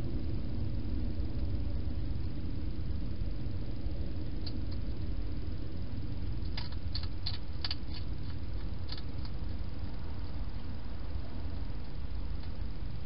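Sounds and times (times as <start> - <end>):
steady low hum: 0.0 - 13.0
hedgehog chewing crunches: 6.4 - 10.6.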